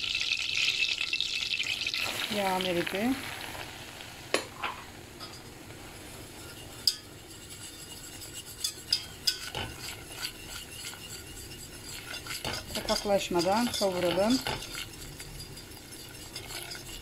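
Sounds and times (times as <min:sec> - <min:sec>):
faint sizzle: 0:00.0 - 0:17.0
whisk stirring in a pot: 0:05.3 - 0:17.0
whisk clinking against pot: 0:06.4 - 0:17.0.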